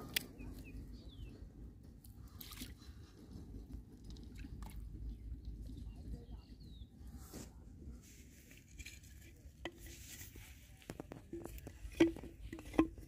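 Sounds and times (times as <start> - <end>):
bamboo pieces knocking: 10.8 - 13.0.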